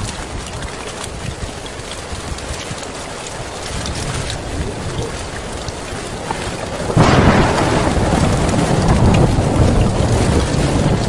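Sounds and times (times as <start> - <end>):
heavy rain on a tin roof: 0.0 - 11.0
thunder rumbling: 3.6 - 11.0.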